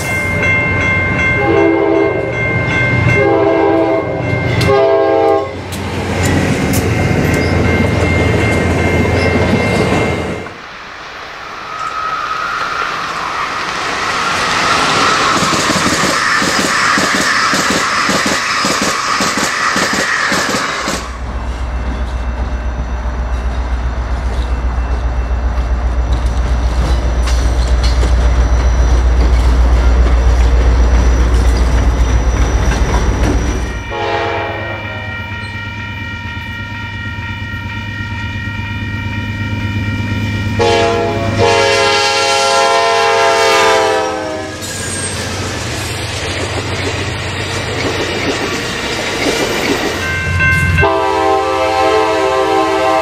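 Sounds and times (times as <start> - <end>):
diesel locomotive rumbling: 0.0 - 53.0
train air horn blasts: 1.4 - 2.3, 3.2 - 5.6, 33.8 - 35.5, 40.5 - 44.7, 50.7 - 53.0.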